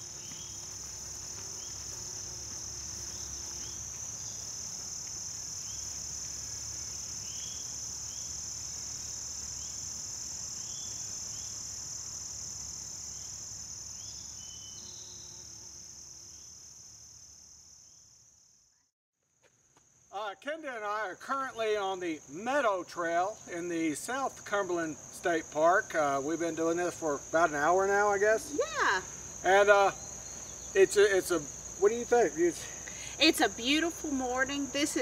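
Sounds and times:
high-pitched insect chorus: 0:00.0 - 0:18.9, 0:19.8 - 0:35.0
short insect chirps: 0:00.0 - 0:18.9.

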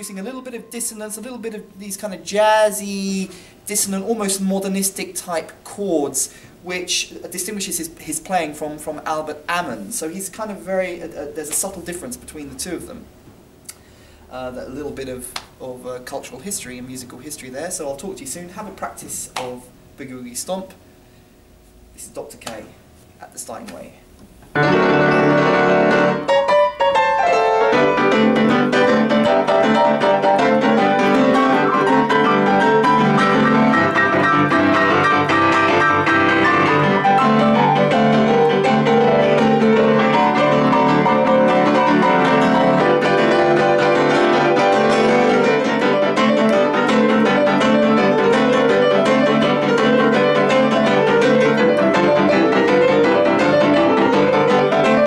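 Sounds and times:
boogie-woogie piano: 0:24.5 - 0:55.0.

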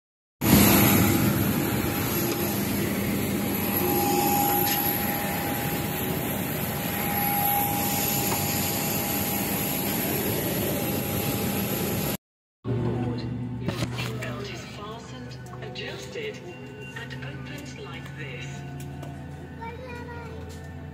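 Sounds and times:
high thin jet whine: 0:00.4 - 0:12.2
jet aircraft rush: 0:00.4 - 0:12.2.

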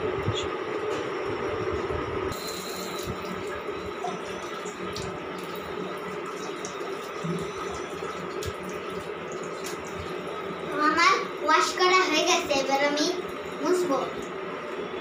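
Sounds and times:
tap water running into sink: 0:02.4 - 0:10.9.

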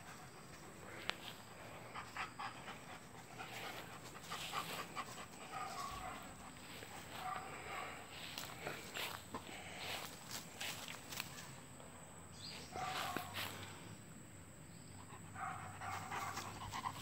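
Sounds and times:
dog panting: 0:00.0 - 0:08.9, 0:15.0 - 0:17.0.

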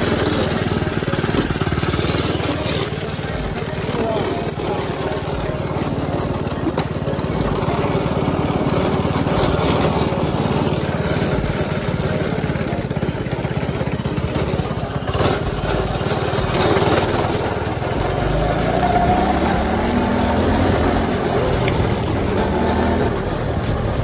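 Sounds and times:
go-kart engine running: 0:00.0 - 0:24.0.

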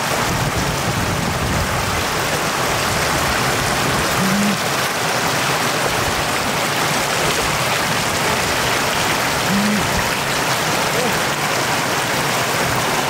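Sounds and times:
floodwater rushing: 0:00.0 - 0:13.0
short low tones: 0:04.2 - 0:04.6, 0:09.4 - 0:10.0.

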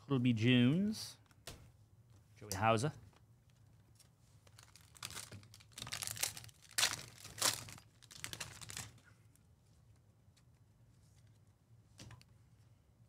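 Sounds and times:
plastic wrapper crinkling and tearing: 0:04.4 - 0:09.0.

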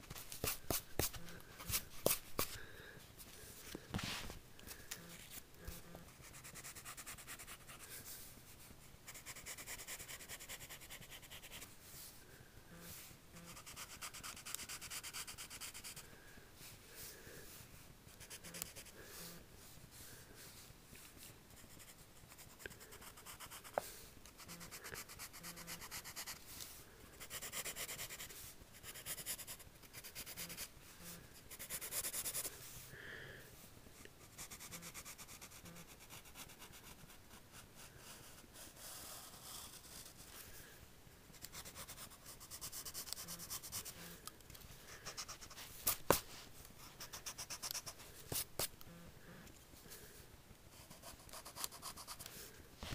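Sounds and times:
pencil scratching on paper: 0:05.7 - 0:08.0, 0:09.1 - 0:11.7, 0:13.4 - 0:16.0, 0:21.6 - 0:26.4, 0:27.2 - 0:30.7, 0:31.4 - 0:32.5, 0:34.2 - 0:40.3, 0:41.3 - 0:44.1, 0:44.9 - 0:46.2, 0:46.8 - 0:48.7, 0:50.7 - 0:52.3.

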